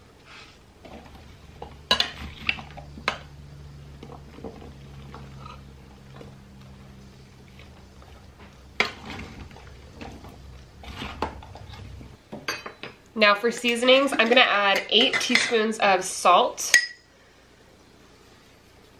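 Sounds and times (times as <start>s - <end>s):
low steady hum: 0.0s - 18.9s
spoon scraping food in bowl: 7.1s - 12.2s
spoon clinking against metal bowl: 16.7s - 17.0s.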